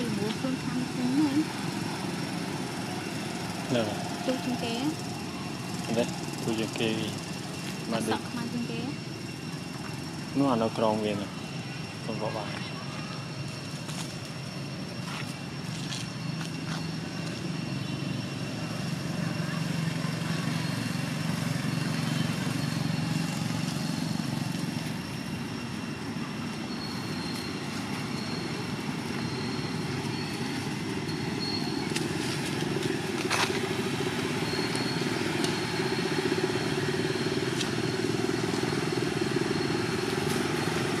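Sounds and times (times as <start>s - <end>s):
motor engine running: 0.0s - 41.0s
faint high chirps: 15.8s - 41.0s.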